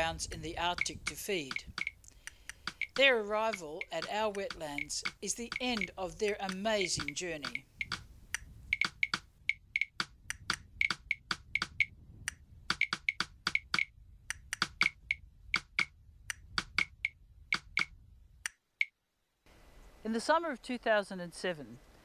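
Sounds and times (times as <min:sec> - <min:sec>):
shorebirds calling: 0:00.8 - 0:08.0.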